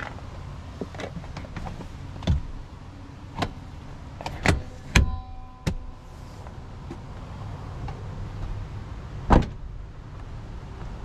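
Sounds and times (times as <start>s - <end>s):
seat cushion clicks and knocks: 0.8s - 2.6s.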